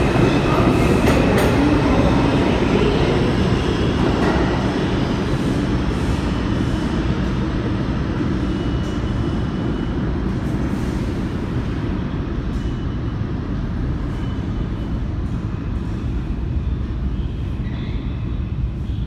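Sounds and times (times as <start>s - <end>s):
subway train rumbling: 0.0s - 19.0s
faint high squeal: 17.2s - 19.0s.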